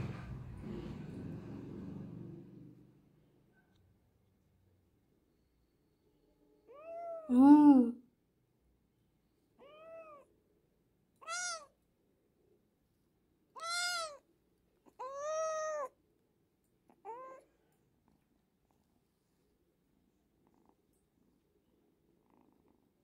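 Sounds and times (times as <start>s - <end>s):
kitten meowing: 6.7s - 7.9s, 9.6s - 10.3s, 11.2s - 11.7s, 13.6s - 14.2s, 14.9s - 15.9s, 17.0s - 17.4s.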